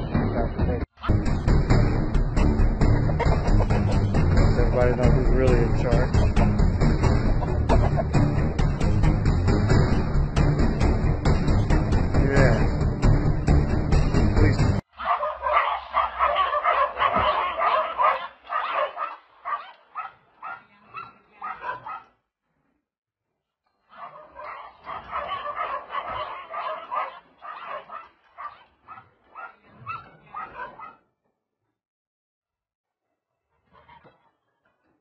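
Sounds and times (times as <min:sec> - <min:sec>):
dog barking and yapping: 0:15.0 - 0:22.2, 0:23.9 - 0:31.0.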